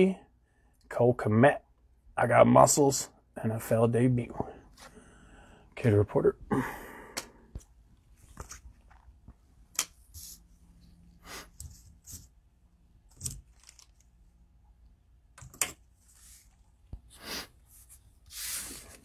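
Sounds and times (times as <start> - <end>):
cards and wrappers rustling: 13.1 - 14.2.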